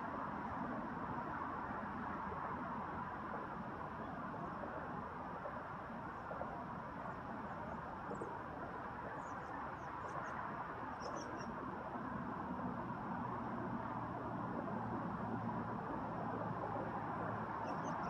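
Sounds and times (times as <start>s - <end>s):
faint high bird chirps: 11.0s - 11.5s, 17.6s - 18.0s.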